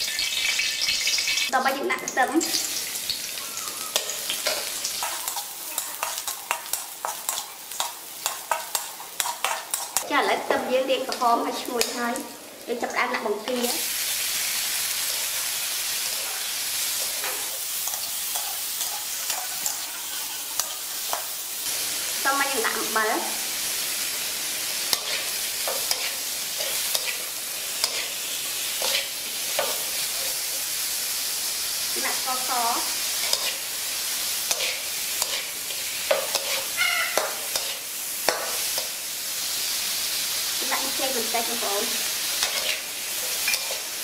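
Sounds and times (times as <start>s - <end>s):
shrimp sizzling in a wok: 0.0s - 44.0s
metal spatula scraping a pan: 14.2s - 21.2s, 24.9s - 30.5s, 33.2s - 33.6s, 34.4s - 38.9s, 42.3s - 44.0s.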